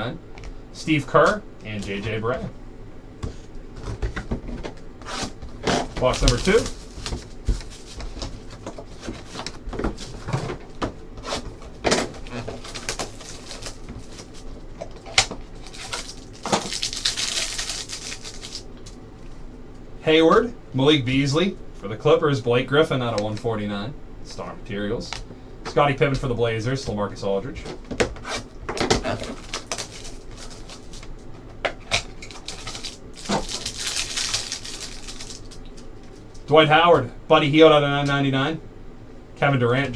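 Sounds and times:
cardboard box and cards rustling: 5.2 - 10.6, 12.3 - 18.6, 28.4 - 31.1
plastic wrap crinkling and tearing: 6.0 - 8.2, 12.2 - 18.9, 28.3 - 31.1, 31.9 - 36.2.

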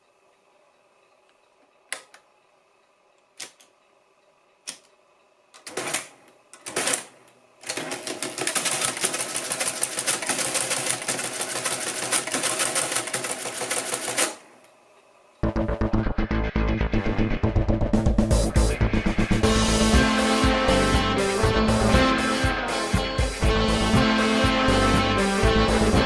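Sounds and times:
rapid mechanical clatter: 5.7 - 14.4.

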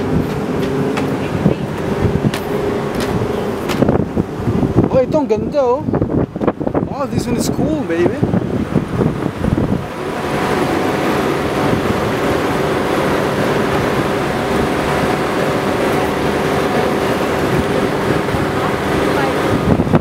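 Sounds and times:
constant low hum: 0.0 - 20.0
distant traffic and machinery: 0.0 - 20.0.

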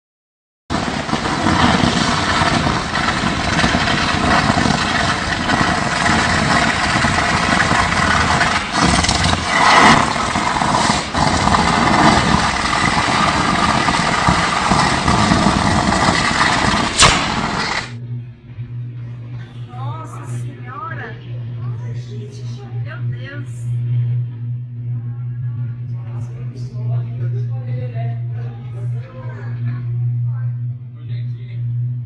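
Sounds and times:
sharp crack: 0.7 - 18.0
electric arc buzzing crackle: 0.7 - 18.2.

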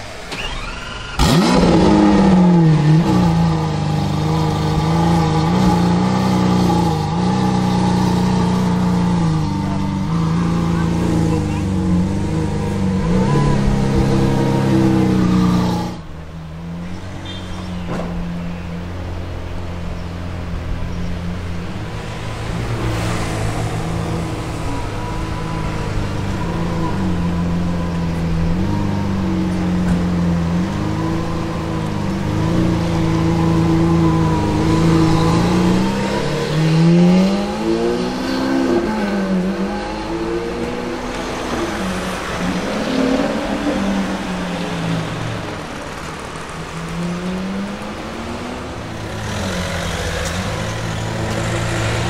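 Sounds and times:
car engine at low revs: 0.0 - 17.1, 17.8 - 52.0.

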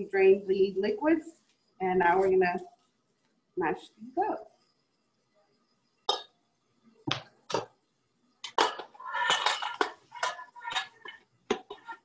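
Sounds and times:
utensil clattering against pot: 8.5 - 12.0.

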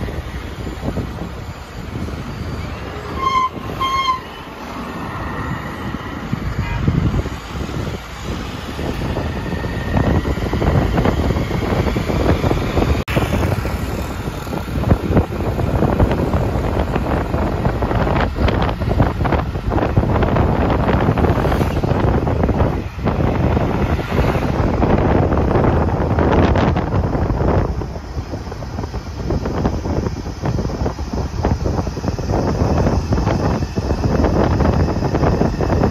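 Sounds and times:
road traffic noise: 0.0 - 35.9
wind buffeting microphone: 0.0 - 35.9
vehicle horn blasts: 3.0 - 4.5, 6.5 - 7.2.

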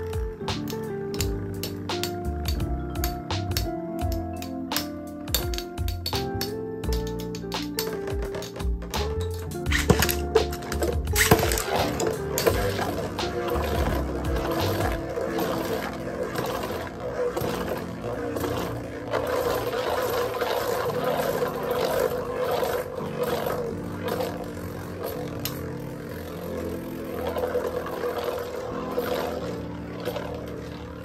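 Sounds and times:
background music: 0.0 - 31.0
spinning tops whirring: 0.0 - 31.0
tops clicking as they clash: 0.6 - 13.2.

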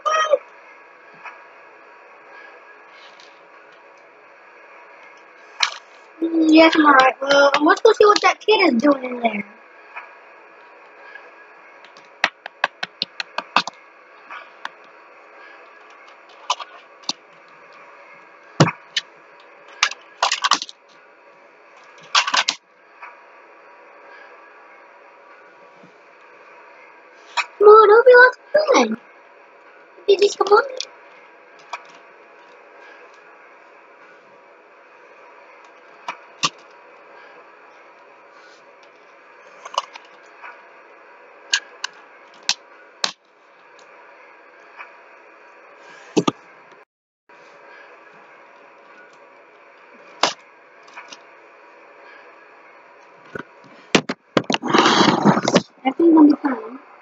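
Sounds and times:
steady low hiss: 0.0 - 46.8
plastic toy train cars clicking: 19.8 - 20.8.

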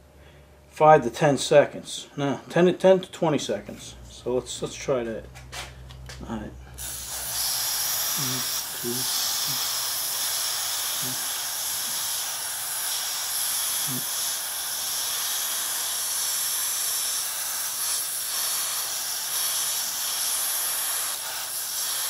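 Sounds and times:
aerosol spray hissing: 6.8 - 22.0.

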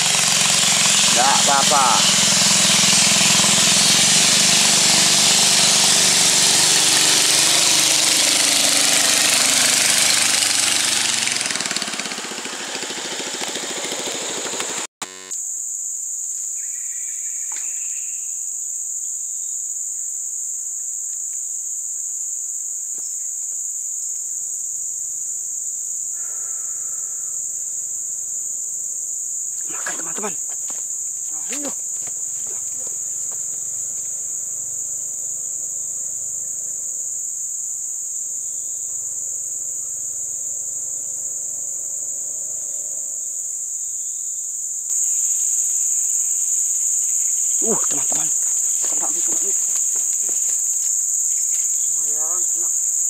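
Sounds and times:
high-pitched insect drone: 0.0 - 13.5, 14.1 - 53.0
motorboat engine passing: 0.0 - 15.3.

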